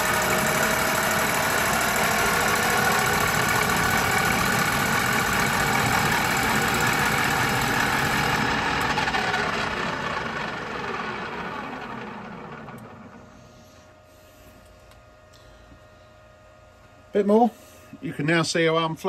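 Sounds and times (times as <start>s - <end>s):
lathe cutting metal: 0.0s - 12.8s
lathe spinning down: 0.0s - 13.4s.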